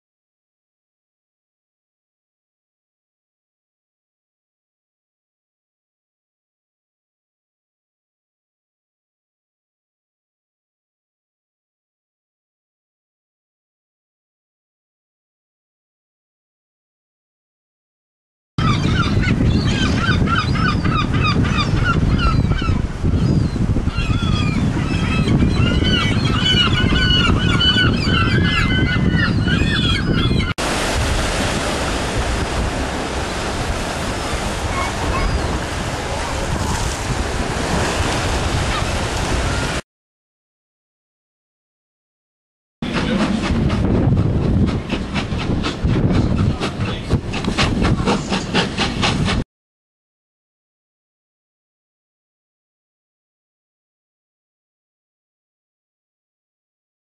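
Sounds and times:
gulls calling: 18.6s - 39.8s
wind and waves: 18.6s - 39.8s, 42.8s - 49.4s
train rumbling: 42.8s - 49.4s.

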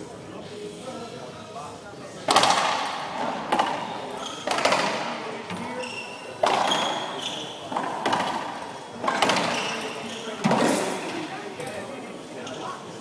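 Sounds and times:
racquet striking ball: 2.3s - 5.7s, 6.4s - 11.0s
shoes squealing on hardwood floor: 4.1s - 4.6s, 5.7s - 7.7s, 9.4s - 10.4s.

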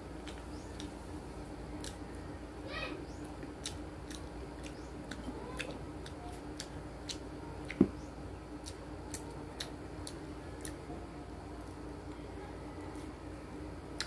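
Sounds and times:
steady low hum: 0.0s - 14.0s
chewing with mouth clicks: 0.2s - 1.0s, 1.8s - 2.0s, 3.3s - 7.9s, 8.6s - 10.8s.

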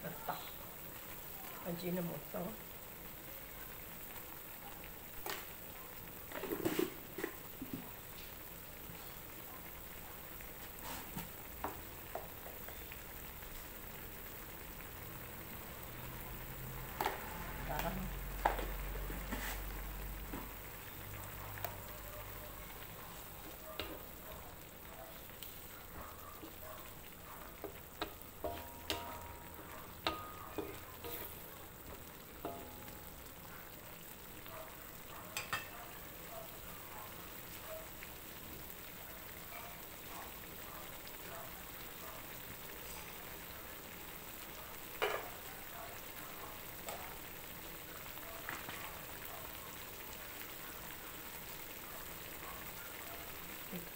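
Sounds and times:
broth sizzling in a wok: 0.0s - 53.9s
metal spatula scraping a wok: 30.0s - 31.4s.

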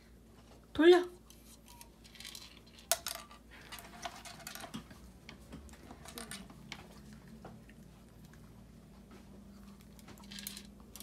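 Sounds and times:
plastic toy clicking and rattling: 2.0s - 4.8s.

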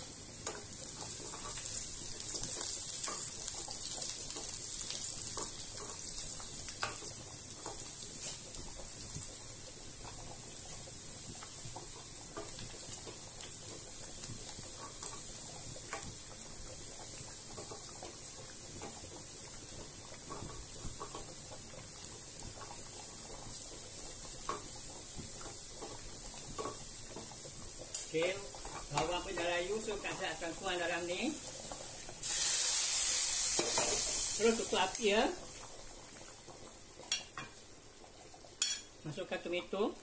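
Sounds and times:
onions sizzling in oil: 0.0s - 40.0s.

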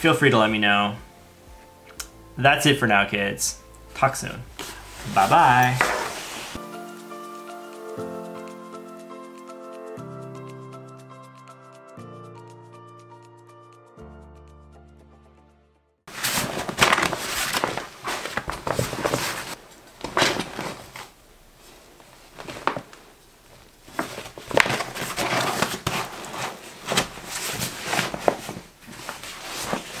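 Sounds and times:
backpack fabric rustling: 4.5s - 6.6s, 16.1s - 30.0s.

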